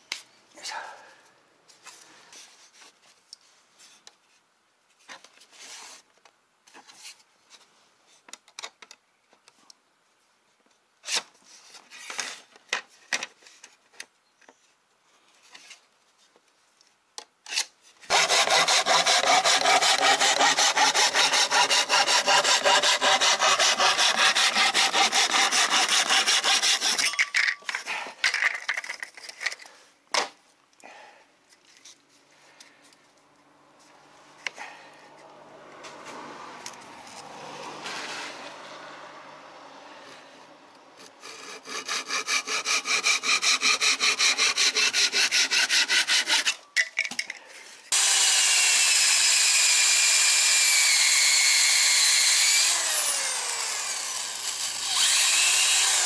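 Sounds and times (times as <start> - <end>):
power saw cutting plywood: 18.1 - 27.0, 37.1 - 39.0, 41.0 - 46.6, 47.9 - 56.0.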